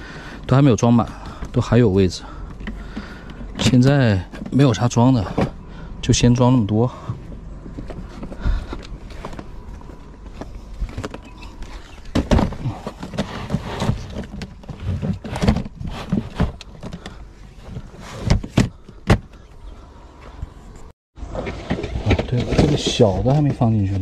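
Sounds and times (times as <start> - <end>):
plastic crates knocking and clunking: 12.0 - 19.4.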